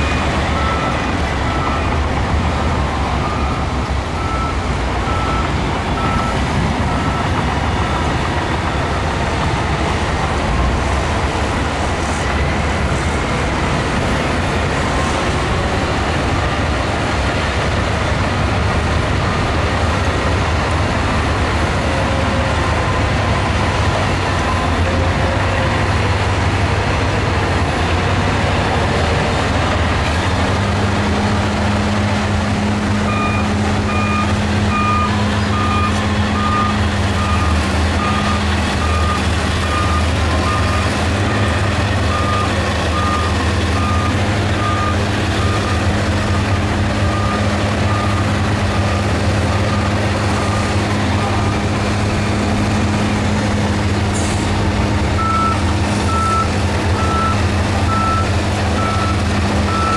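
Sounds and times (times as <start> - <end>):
reversing alarm beeping: 0.0 - 2.0, 2.9 - 7.4, 33.0 - 51.5, 55.2 - 59.9
bulldozer diesel engine running: 0.0 - 59.9.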